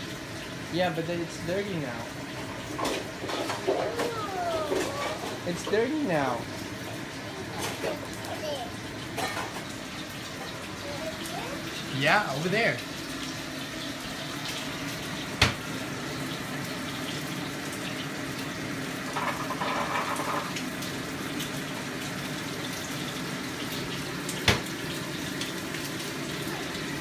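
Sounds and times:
water running from a tap: 0:00.0 - 0:27.0.

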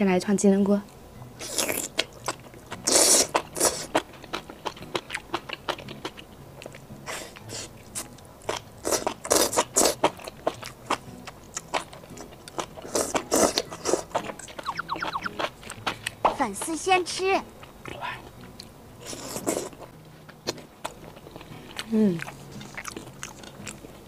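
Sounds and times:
crunchy chewing: 0:01.4 - 0:24.0
wet slurping: 0:02.8 - 0:04.0, 0:12.8 - 0:16.1.

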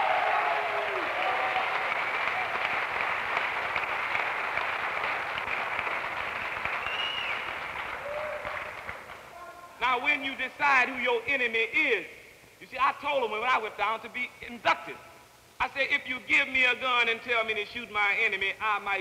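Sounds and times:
crowd applauding and cheering: 0:00.0 - 0:09.4.

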